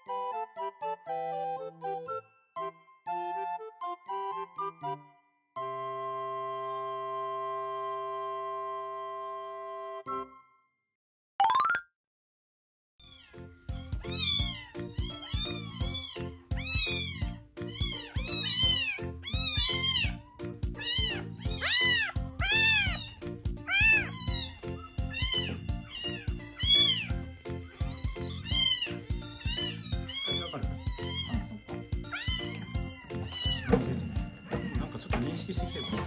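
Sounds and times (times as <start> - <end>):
background music: 0.0 - 10.6, 13.2 - 36.0
kittens mewing: 13.1 - 36.0.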